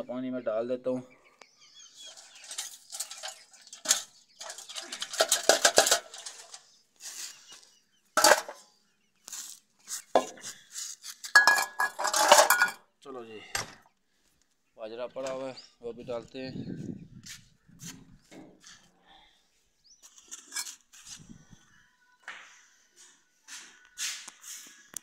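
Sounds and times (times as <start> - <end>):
dishes clattering and clinking: 2.1 - 6.6, 8.2 - 8.6, 11.3 - 12.8.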